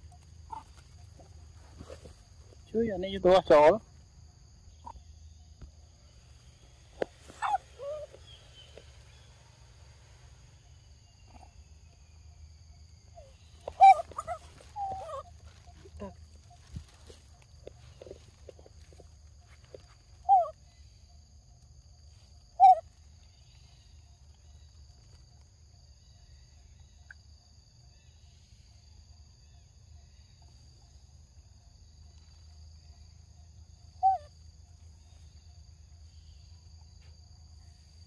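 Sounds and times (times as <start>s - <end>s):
animal calls falling in pitch: 7.0s - 8.9s, 13.6s - 16.2s.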